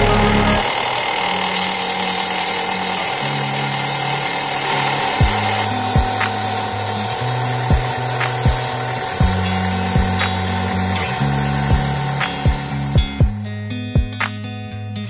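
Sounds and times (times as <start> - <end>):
background music with bass and drums: 0.0 - 0.6, 5.2 - 15.0
belt sander grinding resin: 0.0 - 13.0.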